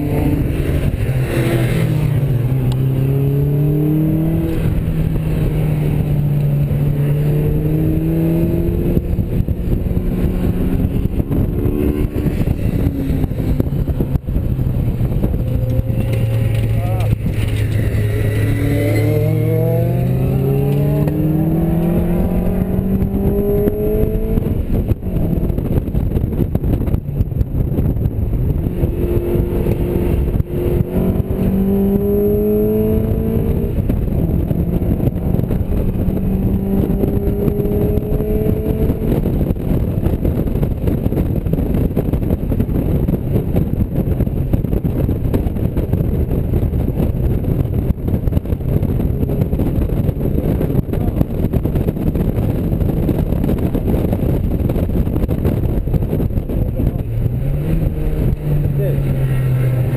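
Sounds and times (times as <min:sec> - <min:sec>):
car engine revving: 0:00.0 - 0:59.9
wind and road rumble: 0:00.0 - 0:59.9.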